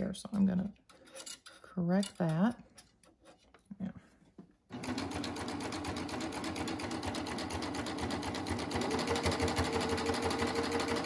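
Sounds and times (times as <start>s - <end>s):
serger stitching: 4.7s - 11.0s.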